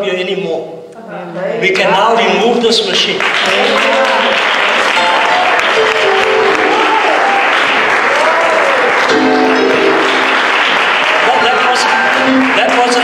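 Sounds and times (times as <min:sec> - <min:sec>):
congregation clapping: 0:02.5 - 0:13.0
people calling out in praise: 0:03.4 - 0:04.4
music with held chords: 0:09.1 - 0:10.5.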